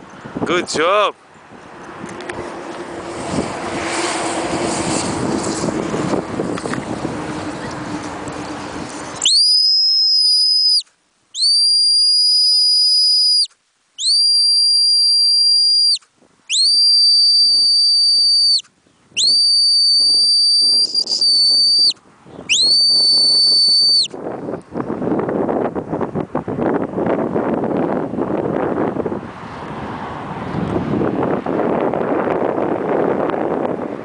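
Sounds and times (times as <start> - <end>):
wind buffeting microphone: 0.0 - 9.4, 15.6 - 34.0
shrill whistle blasts: 9.2 - 24.1.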